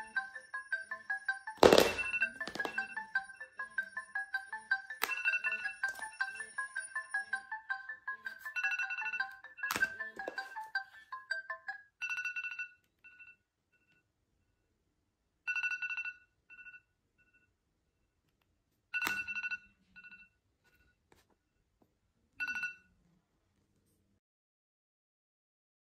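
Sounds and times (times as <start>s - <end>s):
alarm ringing with rapid high beeps: 0.0s - 9.7s.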